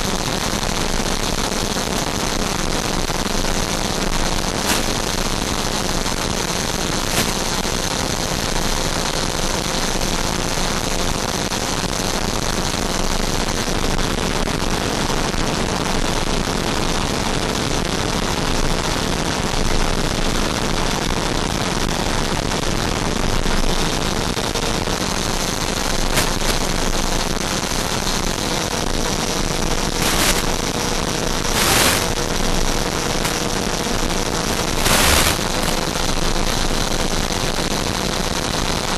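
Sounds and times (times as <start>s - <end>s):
faint steady whine: 0.0s - 10.2s, 23.3s - 38.9s
static crackles: 0.0s - 13.7s, 22.3s - 38.9s
airflow and ducted fan rushing: 2.9s - 8.3s, 25.4s - 36.3s.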